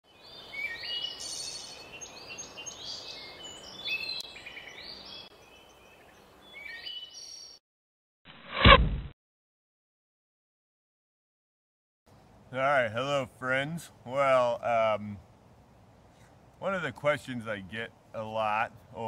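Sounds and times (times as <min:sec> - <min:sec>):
songbirds singing: 0:00.0 - 0:07.6
faint outdoor hiss: 0:00.1 - 0:07.3, 0:12.1 - 0:19.0.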